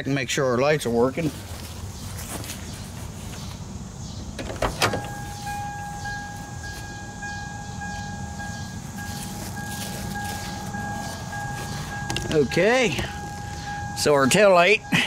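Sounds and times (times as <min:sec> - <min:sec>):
electronic warning buzzer: 0:05.0 - 0:15.0.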